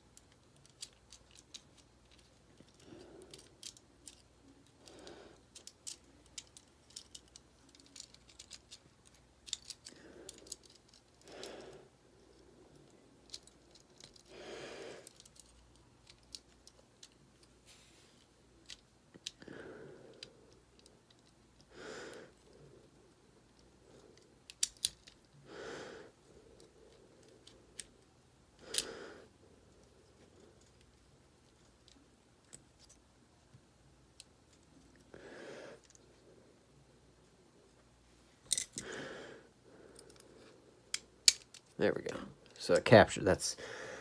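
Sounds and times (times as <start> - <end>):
small steel parts clicking: 0.0 - 11.6, 12.3 - 14.3, 15.0 - 17.6, 18.6 - 19.5, 20.1 - 21.7, 22.3 - 25.4, 28.6 - 28.9, 38.4 - 39.0, 39.9 - 40.2, 40.9 - 41.8.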